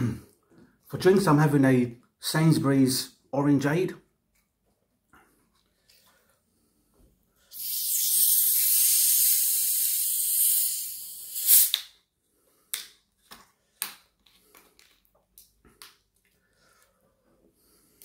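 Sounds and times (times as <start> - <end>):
carbonation hissing: 7.5 - 11.8.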